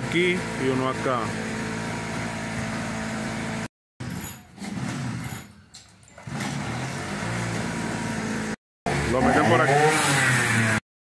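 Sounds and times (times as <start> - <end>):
vehicle engine running: 0.0 - 3.7.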